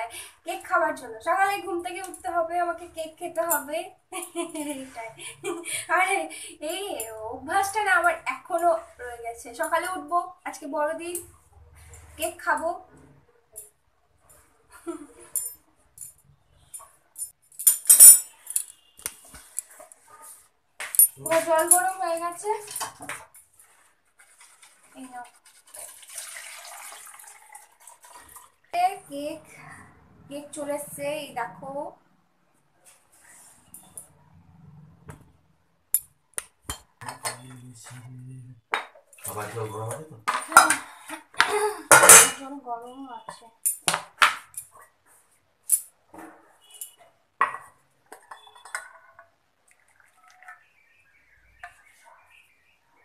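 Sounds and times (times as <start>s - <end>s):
kitchenware clinking and clattering: 12.9s - 23.4s, 36.7s - 38.0s, 38.7s - 42.5s, 45.6s - 50.5s.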